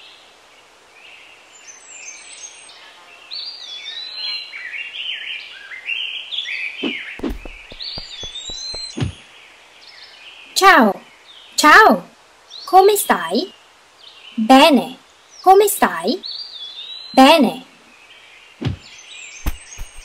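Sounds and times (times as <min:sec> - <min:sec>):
steady outdoor hiss: 0:00.0 - 0:20.0
birds chirping: 0:06.4 - 0:20.0
low thumps: 0:07.2 - 0:09.2, 0:18.6 - 0:20.0.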